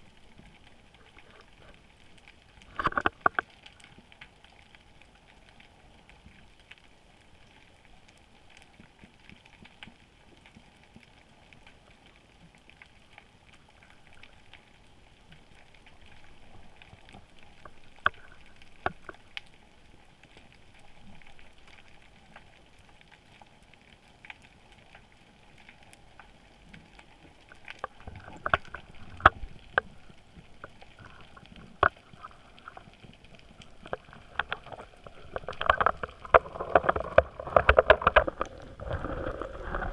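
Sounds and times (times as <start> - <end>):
sharp clicks and knocks: 2.7 - 3.5, 33.8 - 39.9.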